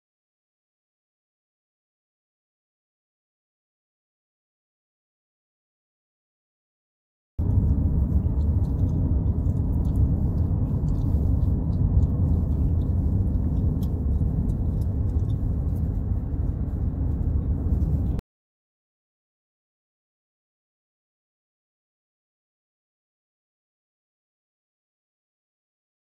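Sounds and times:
car driving rumble from inside: 7.4 - 18.2.

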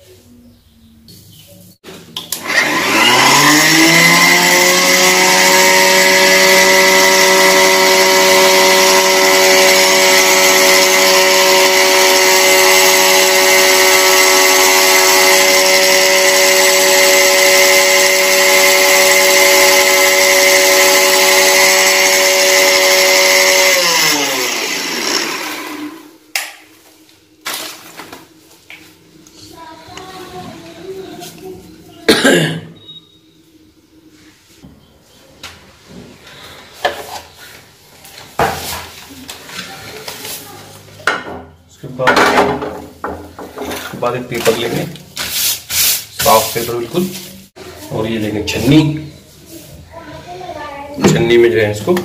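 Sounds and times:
mixer grinder motor grinding rice: 2.3 - 26.2.

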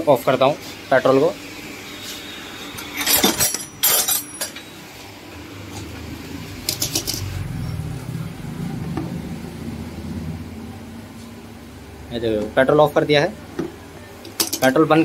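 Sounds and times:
low rumble: 5.4 - 11.2.

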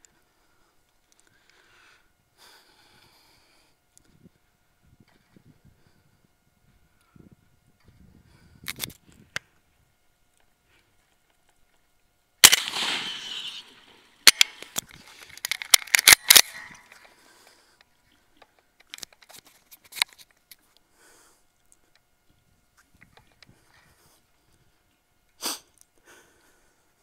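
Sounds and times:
rifle shot: 12.4 - 14.8, 15.7 - 17.0.

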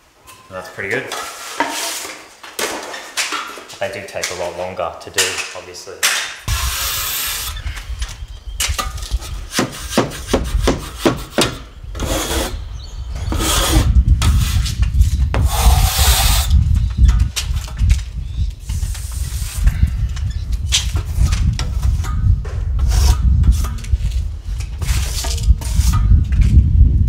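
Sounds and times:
trowel scraping drywall compound: 1.1 - 2.3, 9.1 - 12.6, 13.3 - 14.8, 22.8 - 23.8, 24.8 - 26.1.

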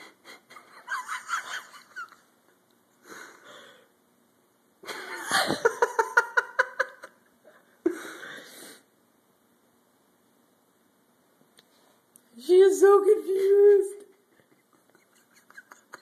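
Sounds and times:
wheezy breaths: 3.0 - 4.0, 7.9 - 8.9
person laughing: 4.9 - 7.2, 13.4 - 16.0.

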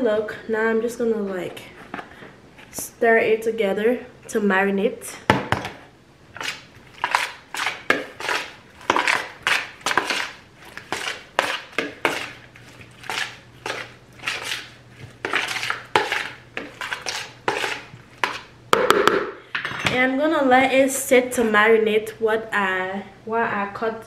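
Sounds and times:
raw meat being stirred: 6.3 - 18.6.

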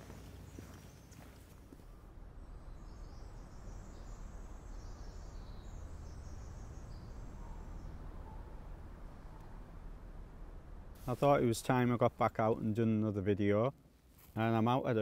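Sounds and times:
low rumble: 1.9 - 11.1.

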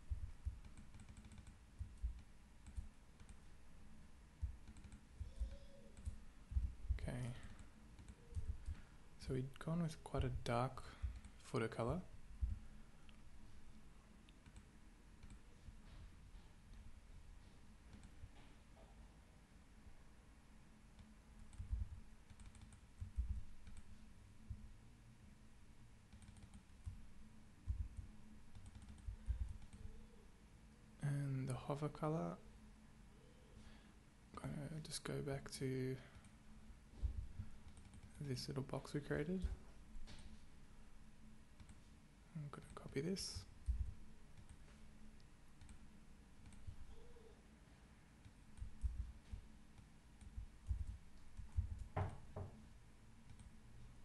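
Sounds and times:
faint steady hum: 0.0 - 54.0
keyboard and mouse clicking: 0.6 - 3.5, 4.6 - 6.2, 21.0 - 23.9, 26.1 - 27.0, 27.7 - 29.9, 37.6 - 38.2, 45.6 - 45.8
dull low knocks: 6.5 - 7.0, 12.4 - 12.6, 27.7 - 28.0, 50.4 - 52.6.

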